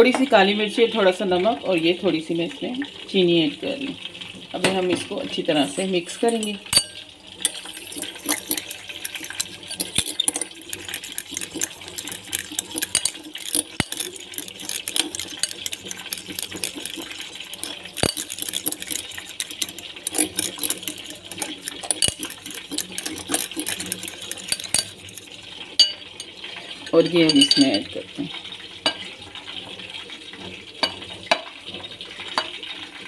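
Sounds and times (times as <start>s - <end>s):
metal spoon clinking and scraping glass: 5.5s - 27.9s.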